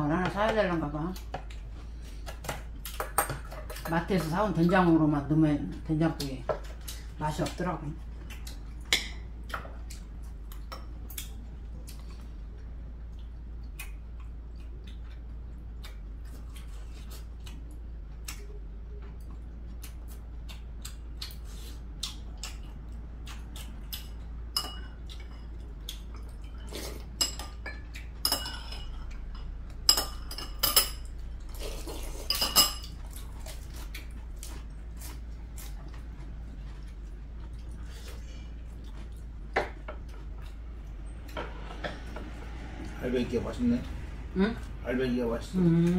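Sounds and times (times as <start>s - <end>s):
cutlery clinking on ceramic bowls: 24.5s - 25.5s, 32.3s - 33.0s.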